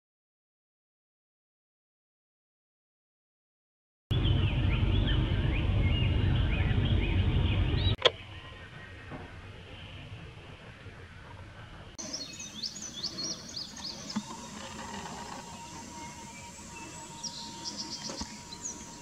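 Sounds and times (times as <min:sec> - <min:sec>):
low even rumble: 0:04.1 - 0:19.0
small birds chirping: 0:12.0 - 0:19.0
steady thin high tone: 0:13.0 - 0:19.0.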